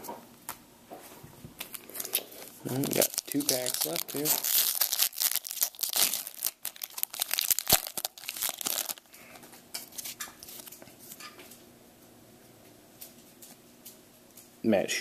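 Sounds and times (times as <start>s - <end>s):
faint rustling of cards: 1.0s - 11.6s
foil wrapper crinkling and tearing: 1.6s - 9.1s.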